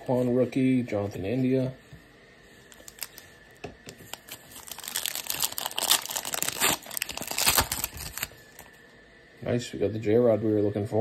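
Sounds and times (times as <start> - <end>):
foil wrapper crinkling: 2.7 - 8.7.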